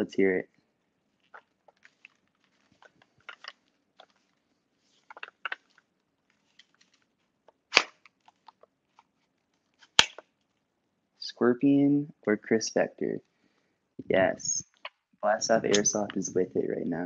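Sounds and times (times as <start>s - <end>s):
loud sharp snap: 7.7s - 8.0s.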